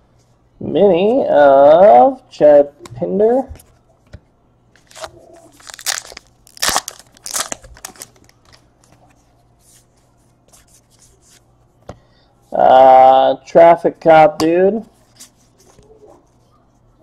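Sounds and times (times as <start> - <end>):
foil wrapper tearing and crinkling: 4.8 - 8.6.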